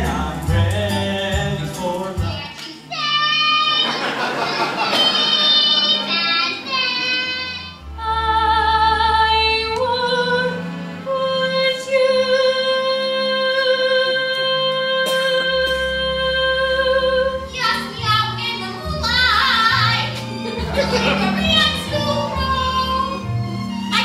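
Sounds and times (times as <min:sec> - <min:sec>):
instrumental accompaniment: 0:00.0 - 0:24.0
woman singing with wide vibrato: 0:05.0 - 0:20.1.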